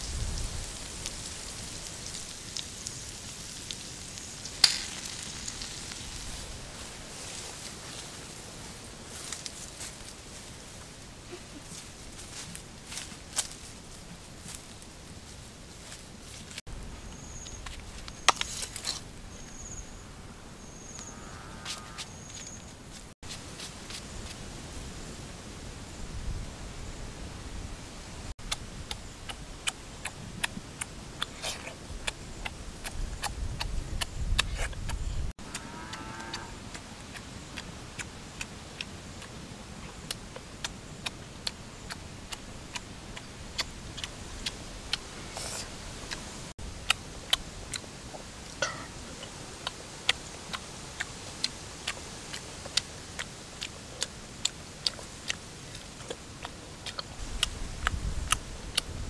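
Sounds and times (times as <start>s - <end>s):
steady hiss: 0.0s - 35.4s, 36.3s - 59.0s
person chewing food: 51.0s - 58.8s.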